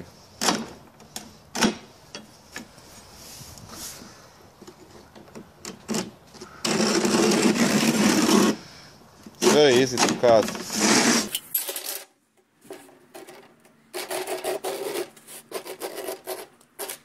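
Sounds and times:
knife scraping cement board: 6.6 - 8.6, 9.4 - 11.4, 13.1 - 17.0.

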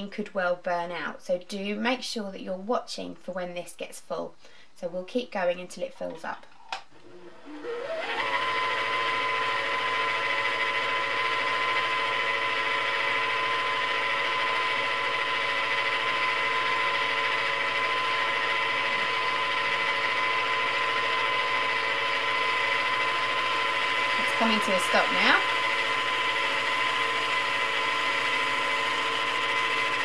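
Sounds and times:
sewing machine motor whining: 7.2 - 30.0.

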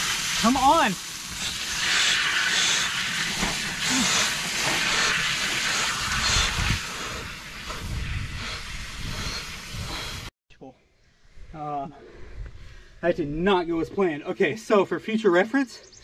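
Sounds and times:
water spraying from faucet: 0.0 - 10.3.

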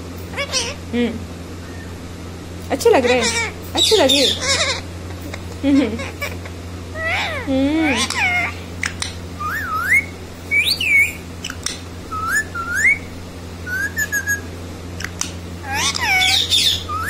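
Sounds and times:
parakeet squawky chatter: 0.3 - 0.8, 2.8 - 13.0, 13.7 - 17.0
parakeet whistles: 1.6 - 2.0, 9.4 - 14.5, 15.6 - 17.0.

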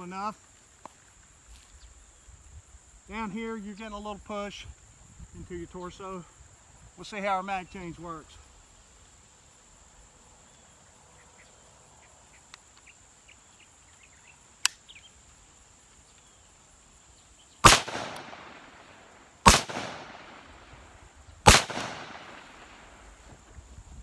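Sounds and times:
high insect buzz: 4.7 - 24.0
sharp click: 14.6 - 14.8
rifle shots with echo: 17.6 - 23.0.

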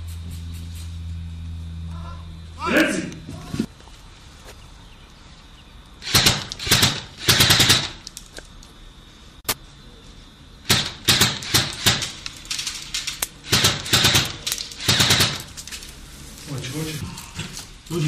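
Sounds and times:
automatic gunfire bursts: 6.0 - 8.0, 10.7 - 12.2, 13.4 - 15.5.

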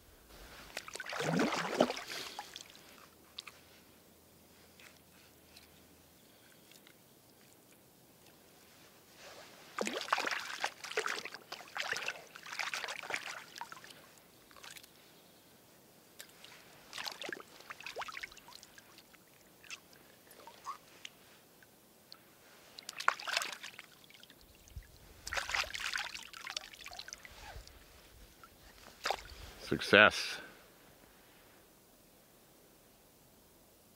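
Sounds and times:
water splashing and sloshing: 0.3 - 3.8, 6.6 - 15.0, 16.2 - 21.4, 22.1 - 29.6.

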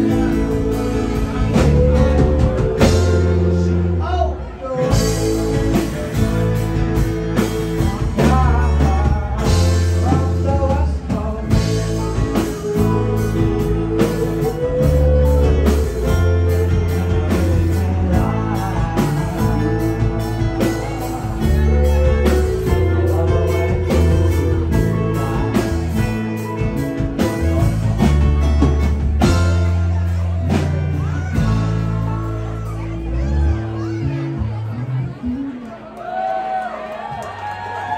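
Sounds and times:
steady drum beat: 0.0 - 3.9, 4.9 - 33.4
harmony singers: 0.0 - 26.8
lead vocal singing: 0.0 - 28.1
acoustic guitars: 0.0 - 35.7
heavy bass line: 0.0 - 35.7.

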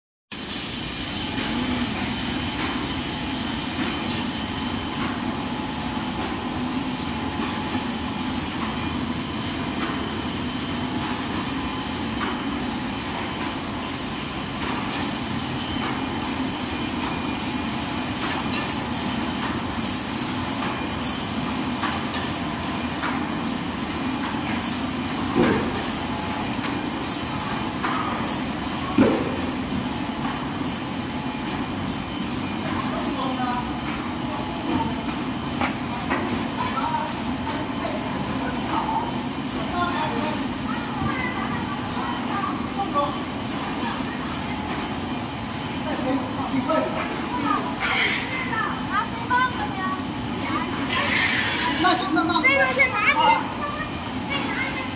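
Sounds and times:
machine belts and rollers running: 0.4 - 54.9.

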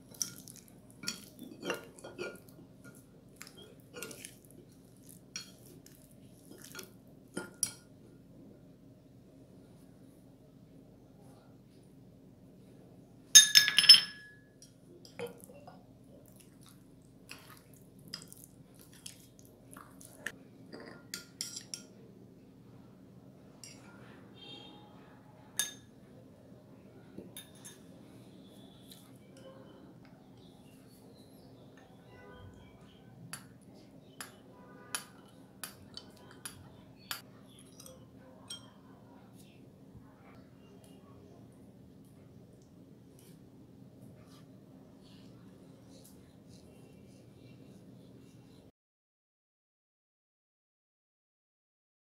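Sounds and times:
spoon stirring jelly mixture: 0.0 - 8.0, 14.6 - 22.0, 32.6 - 39.7
metal spoon clinking ceramic bowl: 0.1 - 4.3, 6.5 - 7.9, 13.4 - 15.4, 20.7 - 21.9, 25.6 - 25.9, 27.4 - 27.9, 34.2 - 38.8.

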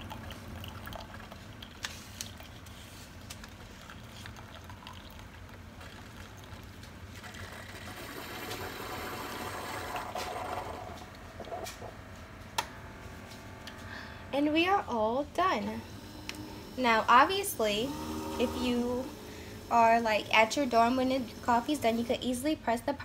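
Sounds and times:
coffee pouring into mug: 0.0 - 11.9.

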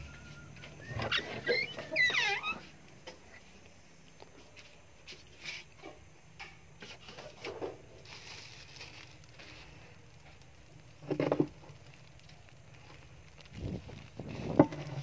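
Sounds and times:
plastic packaging rustling and knocks: 11.0 - 11.8, 13.5 - 15.0.

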